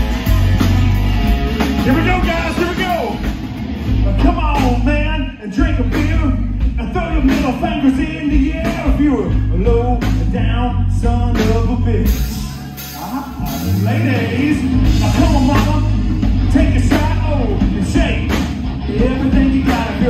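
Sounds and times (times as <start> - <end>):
acoustic and electric guitars: 0.0 - 20.0
drum kit: 0.0 - 20.0
man singing lead vocal: 4.0 - 20.0.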